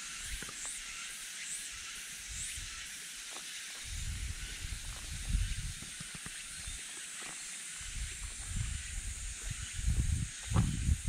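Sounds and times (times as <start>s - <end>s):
cicada chorus hissing: 0.0s - 11.0s
wind rumble on microphone: 3.8s - 6.8s, 7.8s - 11.0s.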